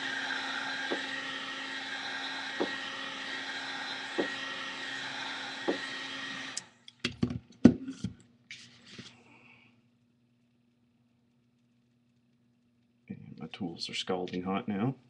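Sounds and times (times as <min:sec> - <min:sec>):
heat gun blowing: 0:00.0 - 0:06.7.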